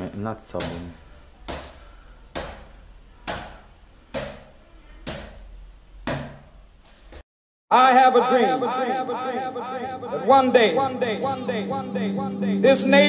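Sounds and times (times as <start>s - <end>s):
volleyball slapping on hands: 0.6s - 5.4s, 6.0s - 7.2s.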